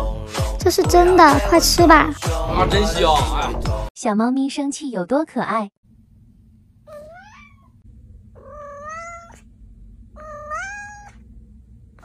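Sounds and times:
faint low hum: 5.9 - 12.0
cat meowing: 6.9 - 7.8, 8.4 - 9.5, 10.2 - 11.2.

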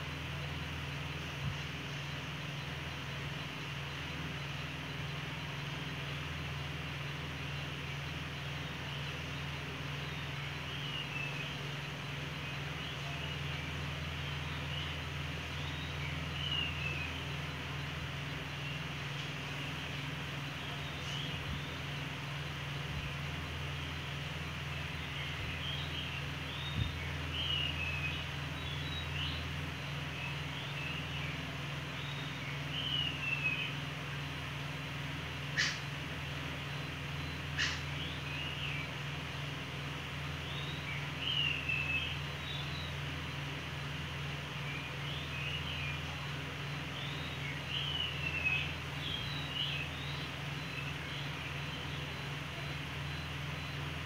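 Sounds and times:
faint bird chirps: 0.0 - 54.0
low hum: 0.0 - 54.0
faint high chirps: 40.3 - 54.0.

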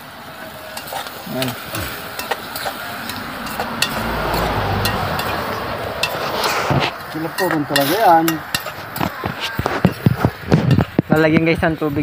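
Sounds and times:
water hissing into steam: 0.0 - 9.0
sharp clicks from fire and pot: 0.7 - 11.6.

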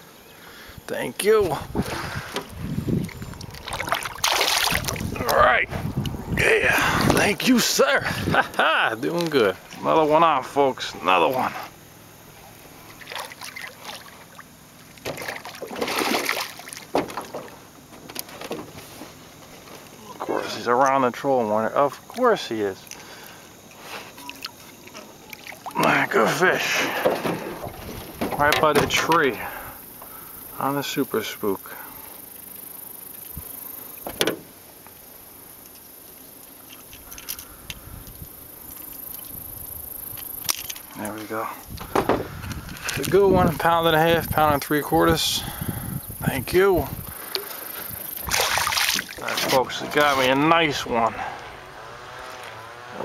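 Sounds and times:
fish splashing in water: 3.0 - 5.2, 12.8 - 17.6, 22.0 - 28.1, 47.1 - 50.0.

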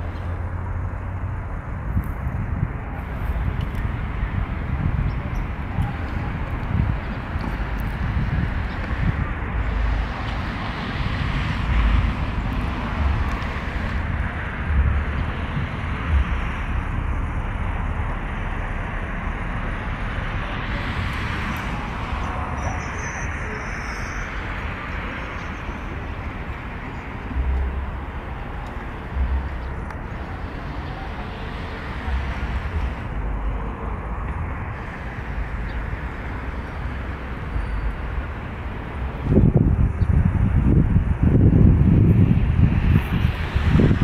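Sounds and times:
wind buffeting microphone: 0.0 - 44.0
faint high whine: 4.9 - 39.0.

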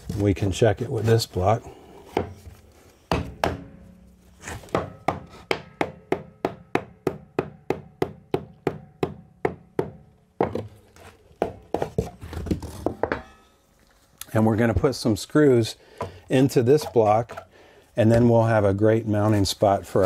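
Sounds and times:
hammer tapping wooden block: 4.8 - 10.7.

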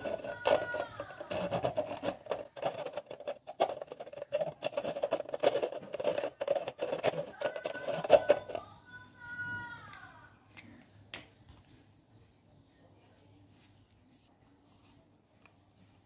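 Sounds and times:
pen tip rubbing on plastic: 0.0 - 8.6
plastic bottle scraping on concrete: 0.0 - 8.6.

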